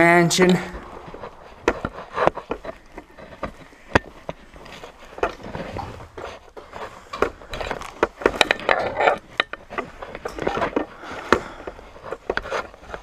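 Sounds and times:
footsteps on wooden stairs: 0.6s - 8.4s.

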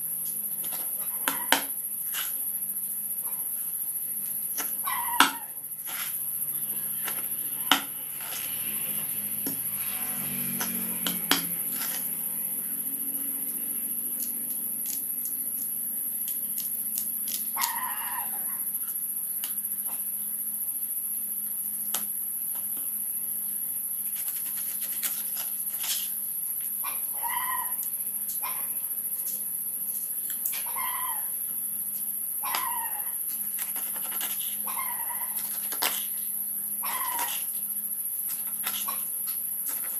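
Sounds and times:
steady high-pitched whine: 0.0s - 39.9s
pet whining: 26.8s - 27.8s, 34.6s - 35.6s, 36.8s - 37.4s.

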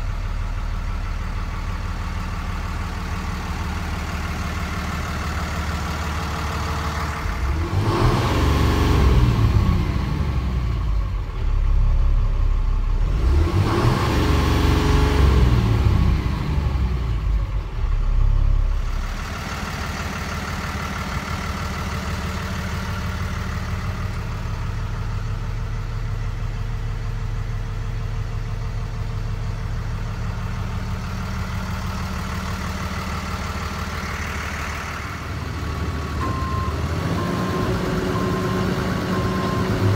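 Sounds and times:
diesel engine idling and revving: 0.0s - 39.9s.

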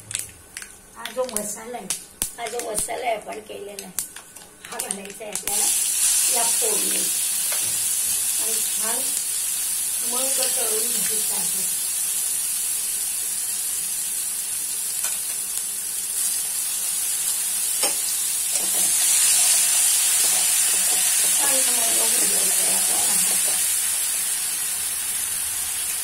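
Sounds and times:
paste sizzling in hot oil: 5.3s - 26.0s.

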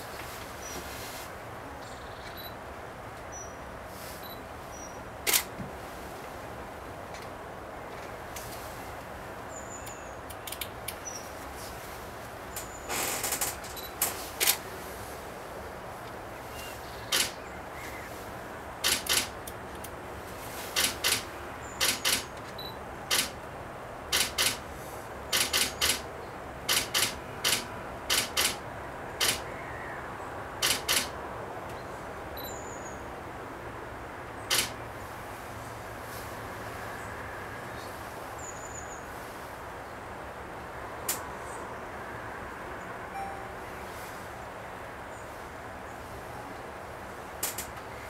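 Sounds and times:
camera shutters clicking: 5.3s - 5.5s, 17.1s - 17.4s, 18.8s - 19.4s, 21.8s - 23.4s, 24.1s - 24.6s, 25.4s - 26.0s, 26.7s - 28.6s, 29.2s - 29.4s, 30.6s - 31.1s, 34.5s - 34.8s
faint high bird chirps: 16.4s - 18.2s, 32.4s - 33.0s, 43.1s - 44.0s.

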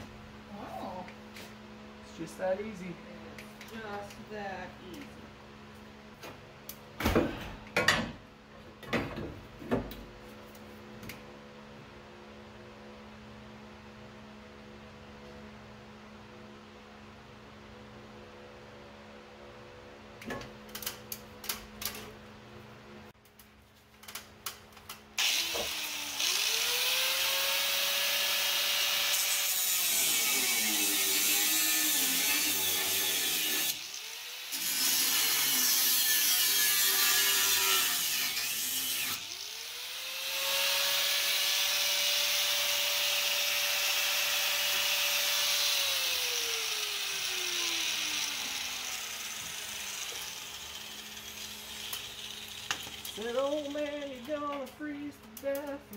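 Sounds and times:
angle grinder cutting sheet metal: 25.2s - 54.7s.

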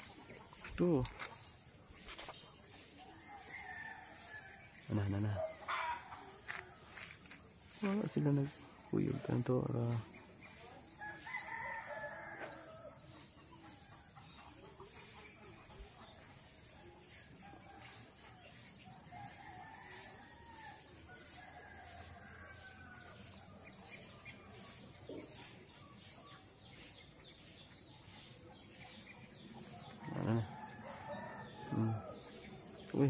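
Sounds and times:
distant rooster crowing: 11.0s - 13.1s, 19.0s - 23.4s, 29.7s - 32.6s.

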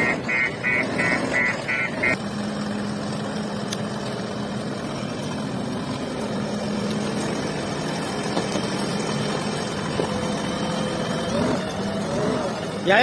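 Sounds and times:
warning alarm beeping: 0.0s - 2.2s
diesel engine running: 0.0s - 13.0s.

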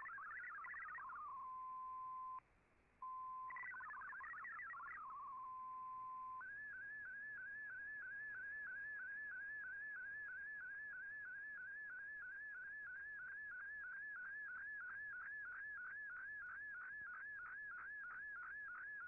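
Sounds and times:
fast-changing data burst tones: 0.0s - 1.4s, 3.5s - 5.2s
single steady tone: 0.0s - 2.4s
warbling image signal tone: 0.0s - 2.4s, 3.1s - 7.2s.

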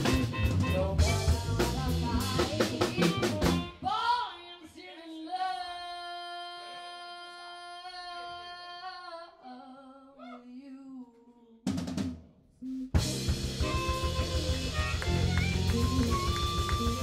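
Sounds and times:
drum kit: 0.0s - 3.8s, 11.7s - 17.0s
rock band playing: 0.0s - 3.8s, 12.9s - 17.0s.

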